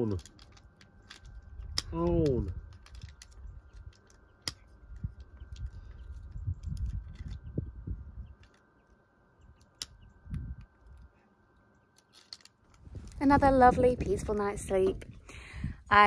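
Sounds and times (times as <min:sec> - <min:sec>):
low rumbling on microphone: 0:04.8 - 0:08.4, 0:12.8 - 0:16.0.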